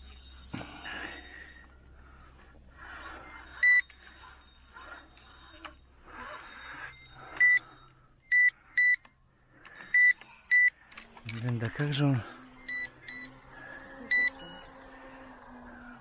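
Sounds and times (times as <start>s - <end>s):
bite alarm beeps: 3.3s - 10.8s, 12.4s - 14.9s.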